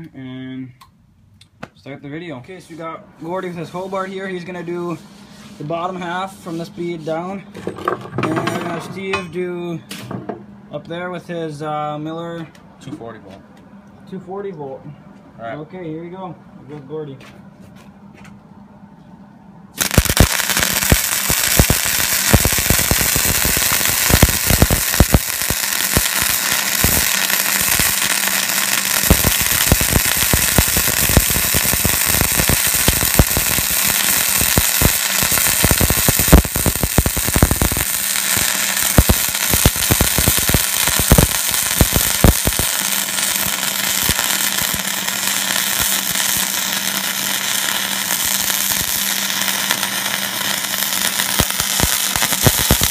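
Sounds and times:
welder low hum: 2.7 - 12.7, 17.7 - 52.9
welding arc crackling and popping: 19.8 - 52.9.

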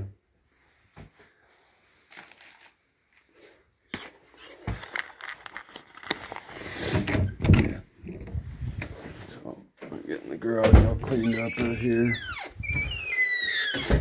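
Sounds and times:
rustling: 0.6 - 7.2.

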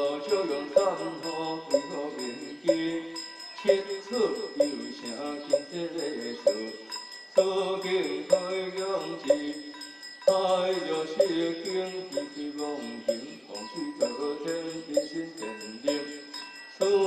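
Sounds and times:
bell tones ringing: 0.0 - 17.0
steady knocking beat: 0.7 - 1.0, 2.6 - 3.0, 9.2 - 9.6.

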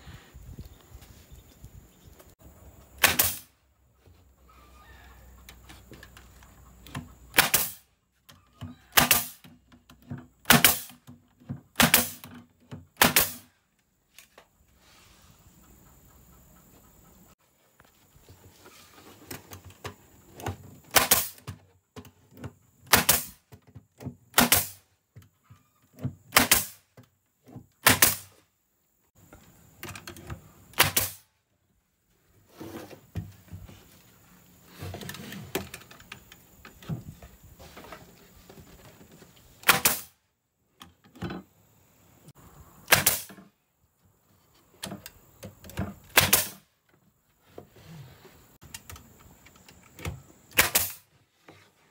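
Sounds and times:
nail gun firing into wood: 3.0 - 3.5, 7.3 - 7.8, 8.9 - 9.5, 10.4 - 11.1, 11.7 - 12.4, 13.0 - 13.5, 20.9 - 21.5, 22.8 - 23.4, 24.3 - 24.8, 26.3 - 26.8, 27.8 - 28.4, 30.7 - 31.3, 39.6 - 40.2, 42.9 - 43.4, 46.1 - 46.6, 50.5 - 51.1.

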